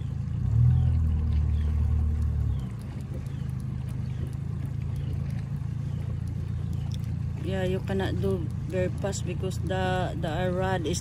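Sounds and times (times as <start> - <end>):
outboard motor humming: 0.0 - 11.0.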